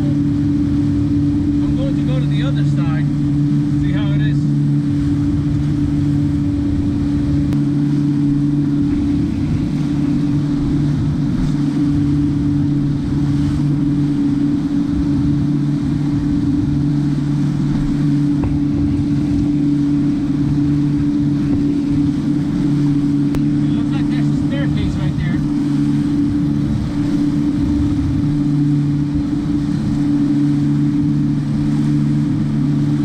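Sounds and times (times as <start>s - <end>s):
boat engine running: 0.0s - 33.0s
water rushing past hull: 0.0s - 33.0s
wind: 0.0s - 33.0s.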